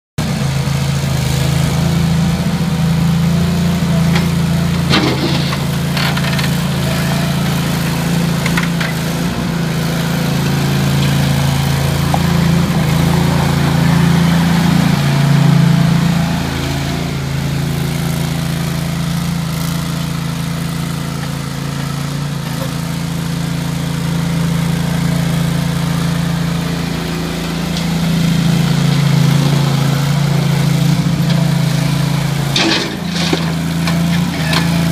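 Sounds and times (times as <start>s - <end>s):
skid loader engine running: 0.2s - 34.9s.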